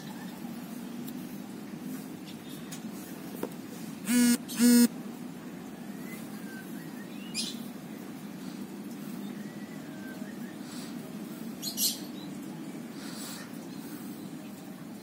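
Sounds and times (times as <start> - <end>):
vehicle horn beeps: 4.1 - 4.9.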